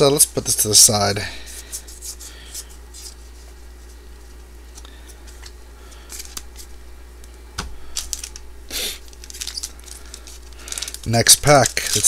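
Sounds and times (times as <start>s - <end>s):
wrapper crinkling: 7.8s - 12.0s.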